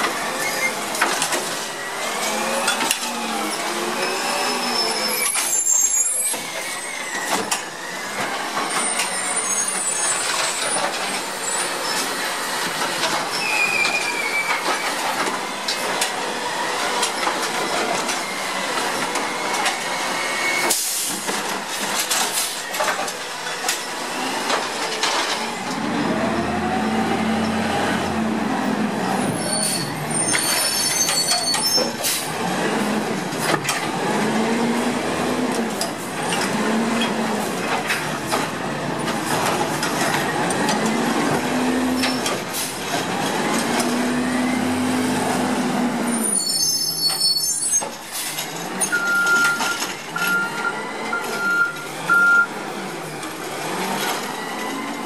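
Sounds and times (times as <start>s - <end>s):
garbage truck engine revving: 23.9s - 30.7s, 32.0s - 46.4s, 48.2s - 55.0s.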